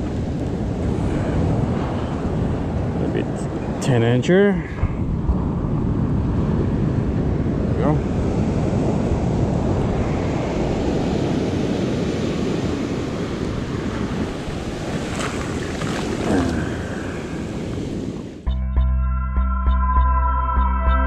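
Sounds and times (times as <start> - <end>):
ocean surf breaking: 0.0 - 18.5
wind buffeting microphone: 0.0 - 18.5
ambient music: 18.4 - 21.0.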